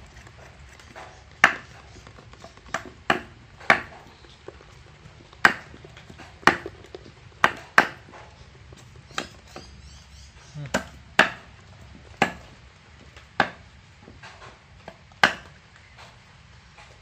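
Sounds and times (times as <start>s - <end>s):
cleaver chopping on wooden block: 0.9s - 4.1s, 5.4s - 6.8s, 7.4s - 8.3s, 9.1s - 9.8s, 10.6s - 15.6s.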